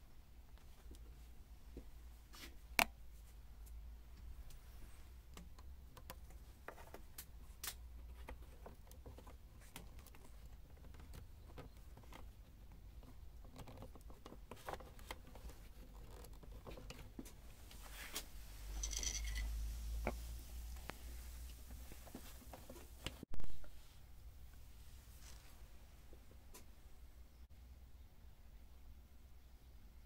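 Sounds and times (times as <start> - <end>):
small clicks and scratches: 3.6 - 23.7.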